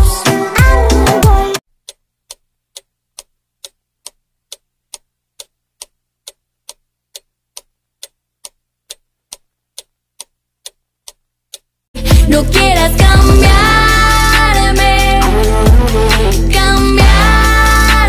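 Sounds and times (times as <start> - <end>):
clock ticking: 0.0 - 12.4.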